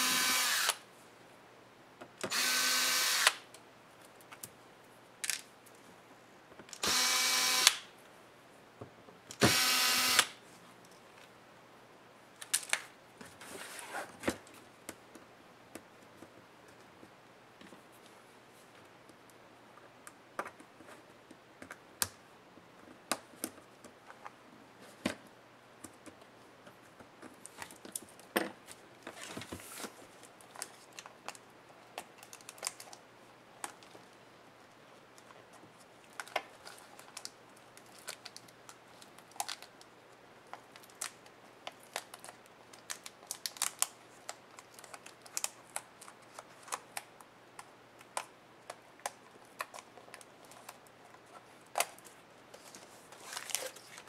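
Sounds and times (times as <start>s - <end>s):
rustling scrape: 13.3s - 14.2s.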